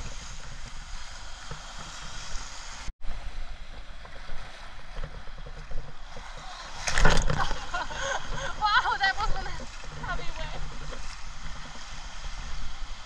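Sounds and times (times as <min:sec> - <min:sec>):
ocean surf washing on sand: 0:00.0 - 0:13.0
wind on microphone: 0:00.0 - 0:13.0
water splash hitting camera: 0:06.1 - 0:08.5.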